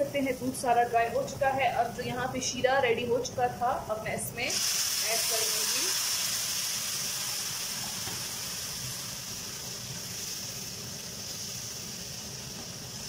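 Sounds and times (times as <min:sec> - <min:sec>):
syrup sizzling in hot pan: 0:04.5 - 0:13.0.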